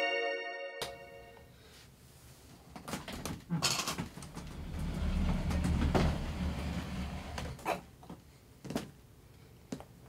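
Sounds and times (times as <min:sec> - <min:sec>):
low rumbling hum: 0:04.3 - 0:07.6.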